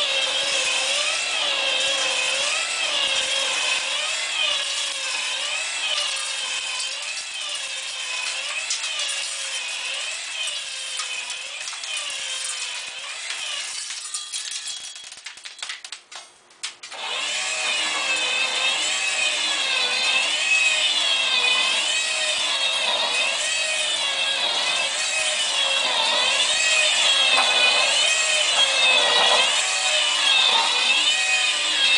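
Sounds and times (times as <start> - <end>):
clicks and rattles: 13.8 - 16.9
electric motor whining: 16.9 - 31.9.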